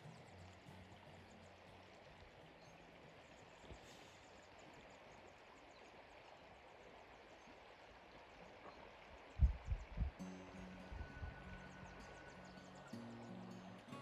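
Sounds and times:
river flowing: 0.0s - 14.0s.

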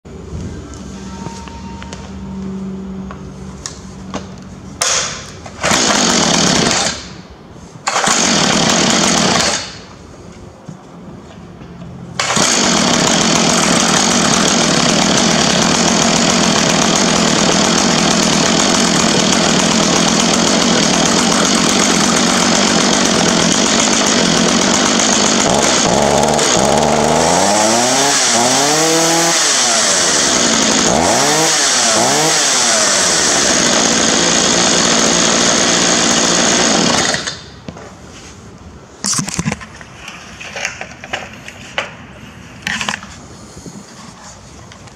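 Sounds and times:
chainsaw running and revving: 5.6s - 7.1s, 7.9s - 9.8s, 12.2s - 37.4s.

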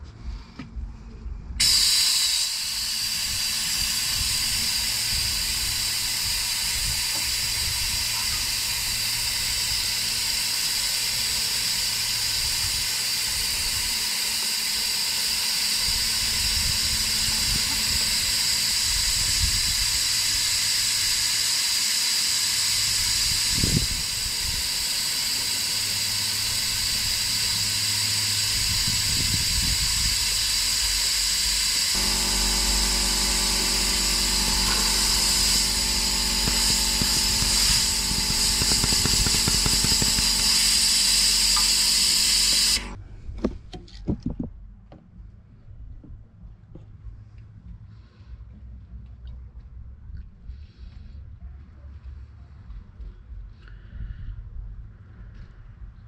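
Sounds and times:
rushing air hiss: 1.6s - 43.0s.

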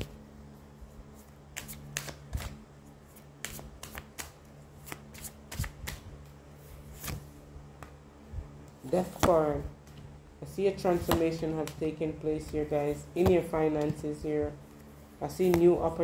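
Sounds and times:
faint steady hum: 0.0s - 16.0s
cards shuffling: 1.2s - 7.4s, 10.8s - 16.0s.

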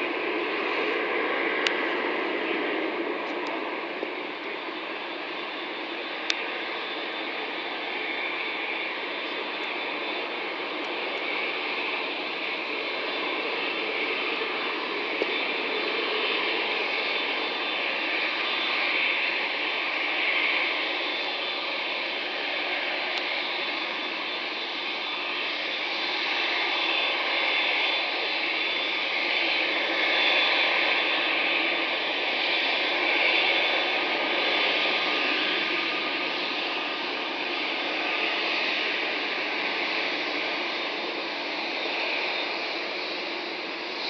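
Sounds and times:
jet engines rushing: 0.0s - 44.0s.

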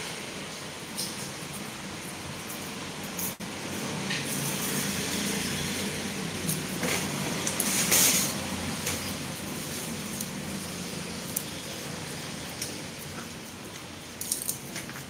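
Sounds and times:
low traffic drone: 0.0s - 15.0s
garlic bulbs clicking: 11.3s - 11.5s, 14.2s - 15.0s.

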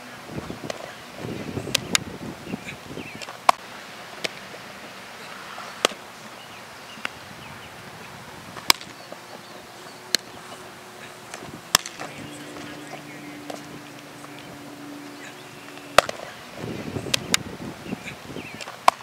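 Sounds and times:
faint outdoor hush: 0.0s - 18.9s
baseballs smacking into gloves: 5.8s - 6.0s.

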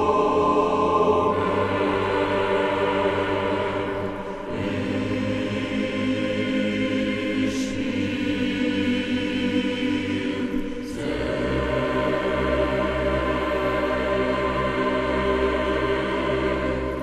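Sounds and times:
choir-like voices over chords: 0.0s - 17.0s.

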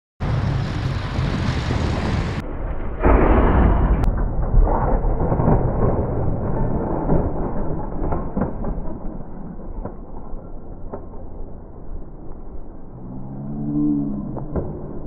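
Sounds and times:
deep muffled rumble: 0.2s - 8.5s.

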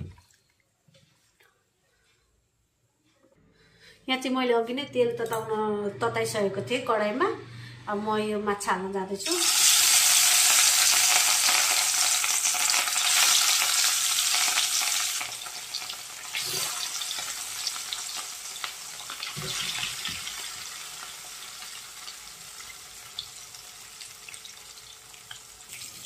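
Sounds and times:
fish sizzling in hot oil: 9.2s - 26.0s.

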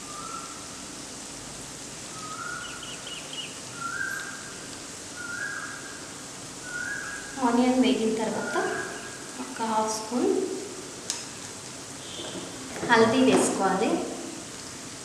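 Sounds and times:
whistled bird note: 5.2s - 5.8s, 6.6s - 7.4s, 8.3s - 9.2s.

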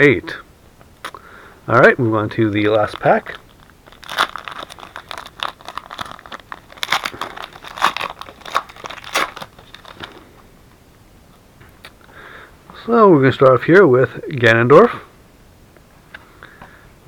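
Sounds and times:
wrapper being torn and crinkled: 2.7s - 10.2s.

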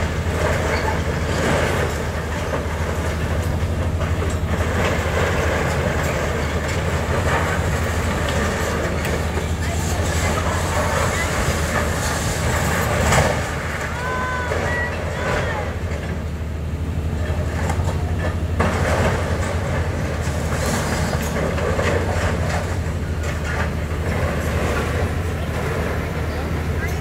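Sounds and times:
excavator diesel engine running: 0.0s - 27.0s
grab crunching metal and rubble: 17.2s - 27.0s.

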